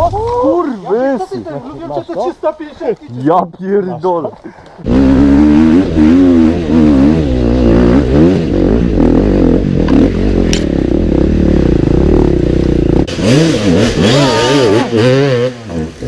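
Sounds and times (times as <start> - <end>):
motorcycle engine revving: 4.8 - 16.0.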